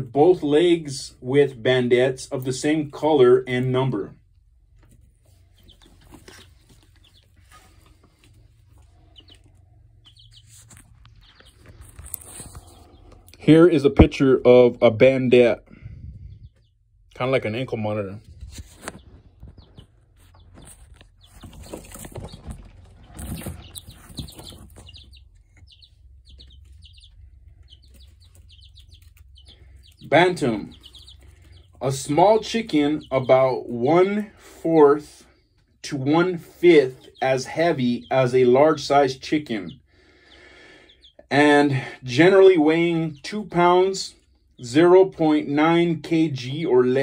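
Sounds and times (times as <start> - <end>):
chicks peeping: 0.0 - 47.0
rustling: 4.6 - 13.3, 18.2 - 32.1.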